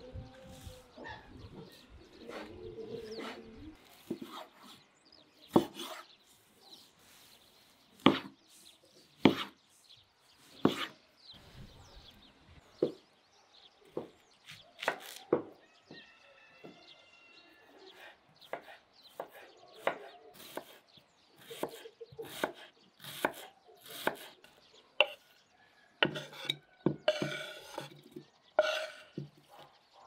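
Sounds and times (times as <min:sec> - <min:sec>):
cleaver chopping on wooden board: 0:05.5 - 0:06.0, 0:08.0 - 0:08.3, 0:09.2 - 0:09.5, 0:10.6 - 0:10.9, 0:18.5 - 0:20.8, 0:21.4 - 0:24.3, 0:25.0 - 0:25.2, 0:26.0 - 0:29.4.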